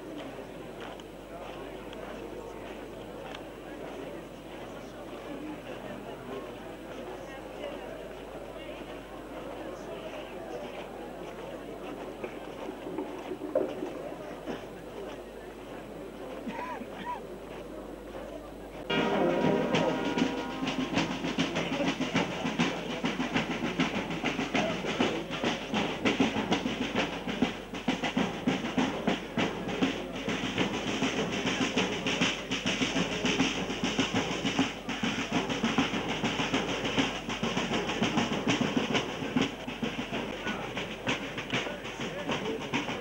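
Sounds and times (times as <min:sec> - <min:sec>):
steady drumming: 0:10.8 - 0:17.2, 0:18.0 - 0:43.0
brass band playing: 0:18.9 - 0:28.8.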